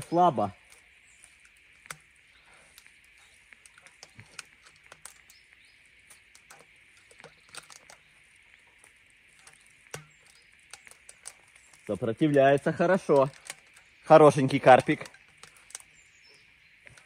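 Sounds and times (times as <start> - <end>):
fishing line clicks and rustles: 0.0 - 17.0
steady high background hiss: 0.0 - 17.0.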